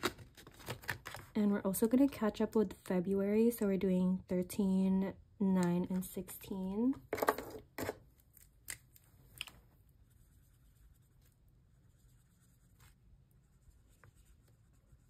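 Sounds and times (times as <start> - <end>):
paper rustling and crinkling: 0.0 - 1.4.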